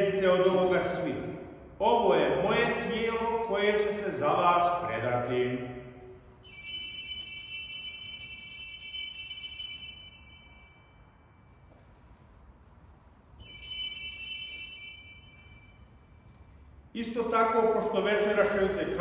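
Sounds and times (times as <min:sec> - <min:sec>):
small bells jingling: 0:06.4 - 0:11.4, 0:13.4 - 0:16.2.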